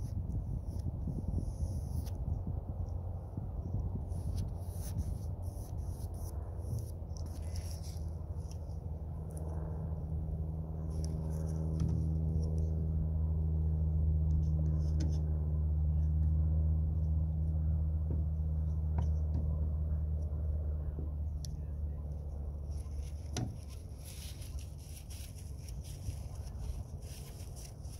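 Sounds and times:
low motor hum: 0.0 - 27.9
light scratches and clicks: 4.1 - 9.7, 10.8 - 12.8, 22.2 - 27.9.

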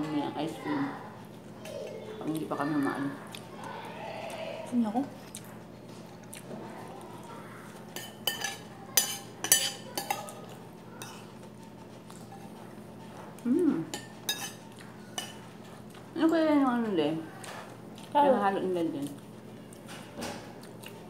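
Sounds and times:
spoons scraping ceramic plates: 13.9 - 15.4.

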